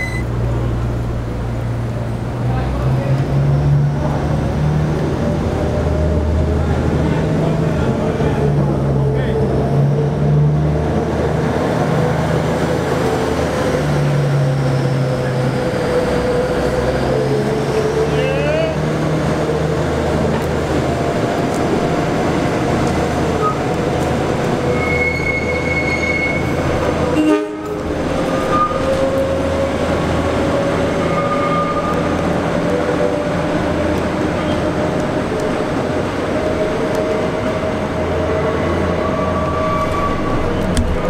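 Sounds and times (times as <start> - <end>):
steel wheels squealing: 0.0 - 0.3, 24.6 - 26.8, 28.2 - 29.4, 30.9 - 32.2, 38.8 - 41.0
diesel locomotive engine hum: 0.0 - 41.0.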